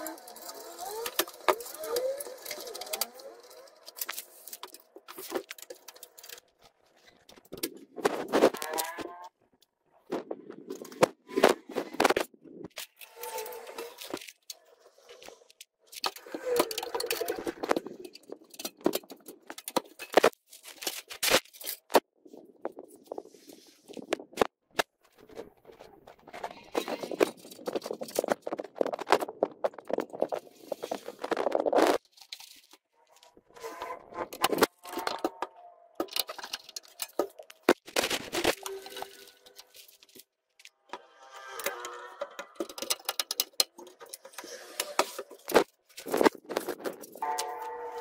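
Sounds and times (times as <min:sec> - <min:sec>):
parts clicking inside metal case: 0:00.0 - 0:09.3, 0:15.5 - 0:22.0, 0:25.3 - 0:48.0
rubbing and scraping: 0:00.0 - 0:09.4, 0:10.0 - 0:22.1, 0:22.7 - 0:48.0
clicks and knocks of computer parts: 0:34.2 - 0:40.2, 0:40.9 - 0:48.0.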